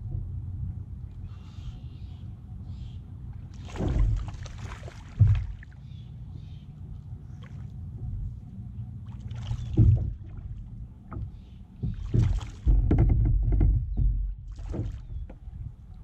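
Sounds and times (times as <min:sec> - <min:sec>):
low rumble: 0:00.0 - 0:16.0
fish splashing at water surface: 0:03.5 - 0:05.7.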